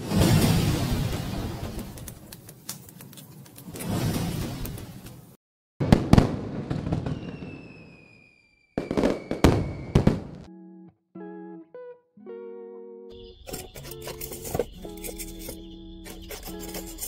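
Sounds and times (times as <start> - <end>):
firework bangs: 0.0 - 2.3, 3.8 - 5.2, 5.8 - 10.5
firework crackle: 3.6 - 5.3, 5.9 - 10.2
falling whistle: 7.0 - 10.2
plucked guitar notes: 10.5 - 13.2.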